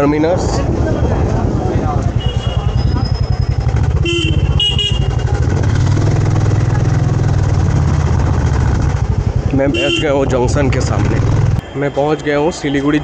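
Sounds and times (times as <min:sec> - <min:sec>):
low engine rumble: 0:00.6 - 0:11.6
vehicle horn honking: 0:02.2 - 0:03.2, 0:03.9 - 0:05.3, 0:09.6 - 0:10.3.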